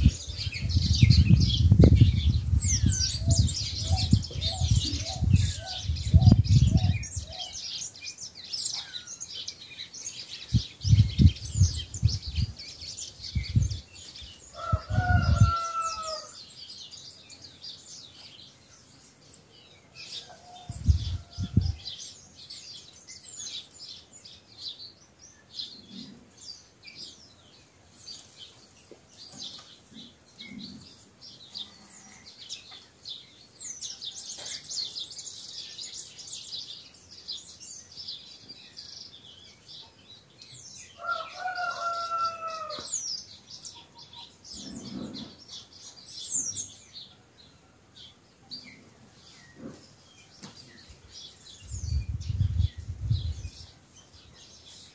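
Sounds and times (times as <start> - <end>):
small birds chirping and singing: 0.0 - 54.9
rooster crowing: 14.6 - 16.4, 41.0 - 42.9.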